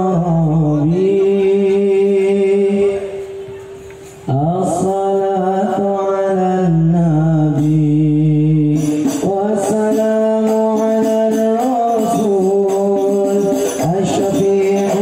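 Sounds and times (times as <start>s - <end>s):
person singing over loudspeakers: 0.0s - 15.0s
tambourine strikes: 8.8s - 15.0s.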